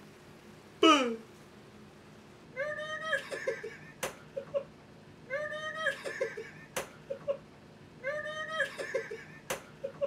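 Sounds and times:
high-pitched wordless cry: 2.6 - 4.7, 5.3 - 7.4, 8.0 - 10.0
giggles: 2.6 - 10.0.

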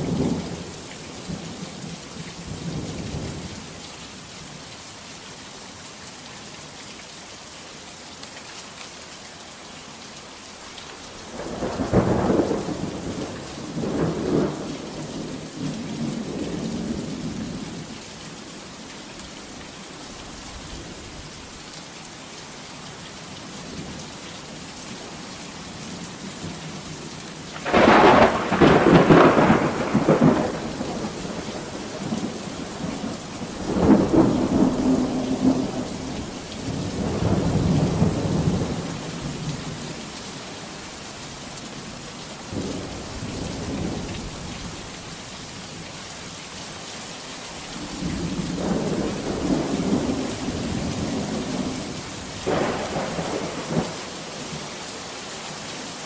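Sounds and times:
heavy rain: 0.0 - 56.0
thunder rumbling: 11.3 - 17.4, 27.6 - 39.0, 47.8 - 54.0.

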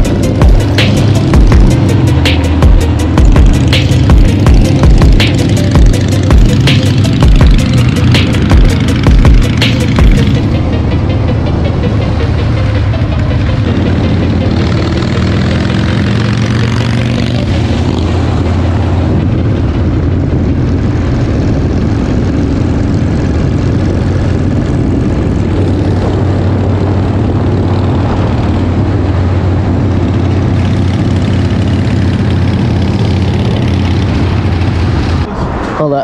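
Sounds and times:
motorcycle engine drone: 0.0 - 36.0.

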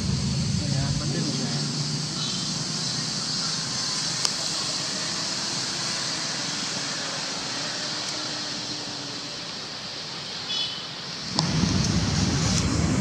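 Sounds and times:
faint low hum: 0.0 - 2.4
high outdoor hiss: 0.0 - 13.0.

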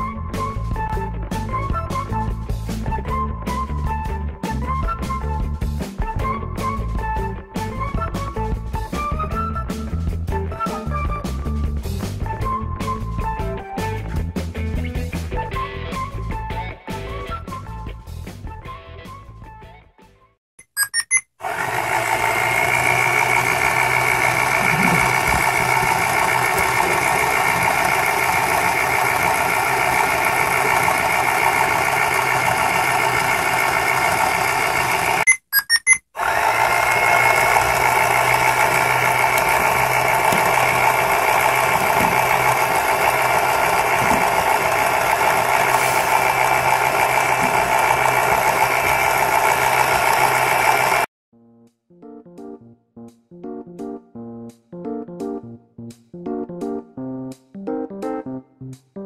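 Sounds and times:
short beeps: 20.6 - 21.3, 35.3 - 36.0
toy washing machine whirring: 20.6 - 51.1.

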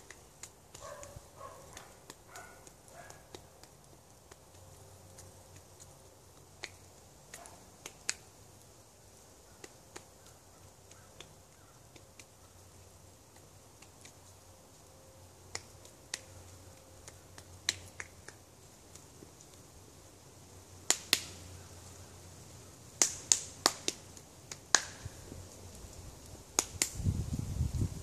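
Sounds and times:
sharp clicks and snaps: 0.0 - 8.3, 9.6 - 12.4, 13.3 - 14.4, 15.4 - 19.6, 20.9 - 21.4, 23.0 - 25.1, 26.6 - 27.0
faint low background noise: 0.0 - 28.0.

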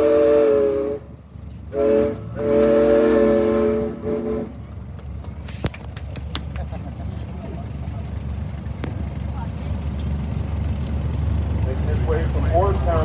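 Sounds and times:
steam whistle blasts: 0.0 - 1.1, 1.7 - 4.5.

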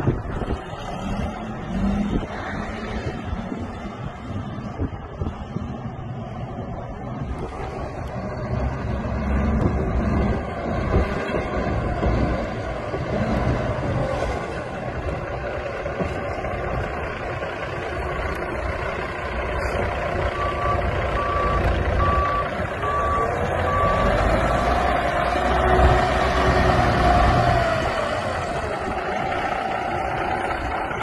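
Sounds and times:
diesel truck engine running: 0.0 - 31.0
reversing alarm beeping: 20.3 - 24.3.

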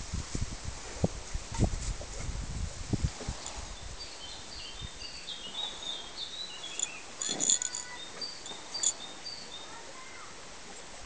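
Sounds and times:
birds chirping and twittering: 3.5 - 9.8.

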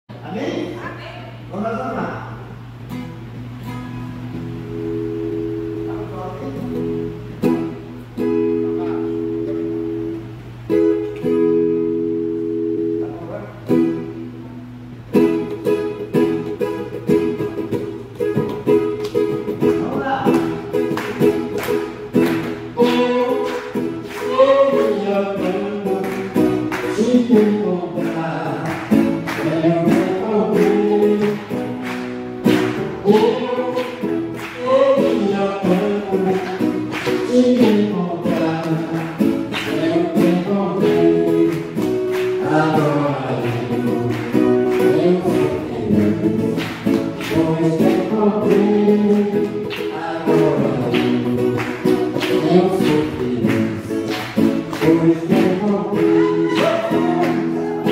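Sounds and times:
acoustic guitar strumming: 0.1 - 57.9
man singing: 19.6 - 21.0, 22.4 - 31.7, 32.5 - 57.9.

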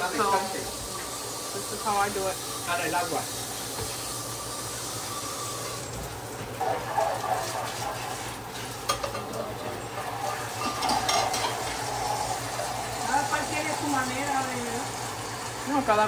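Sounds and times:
sauce simmering hiss: 0.0 - 16.0.

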